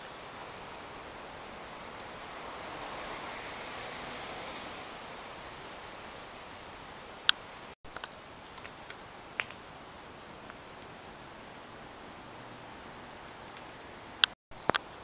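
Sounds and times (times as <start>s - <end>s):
outdoor background hiss: 0.0s - 15.0s
sharp chirp-like clicks: 7.3s - 9.5s, 13.3s - 14.8s.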